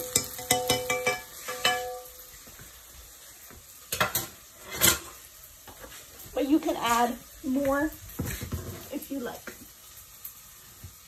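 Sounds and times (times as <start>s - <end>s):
metal spoon clinking against pot: 0.0s - 2.2s
food sizzling: 0.0s - 11.0s.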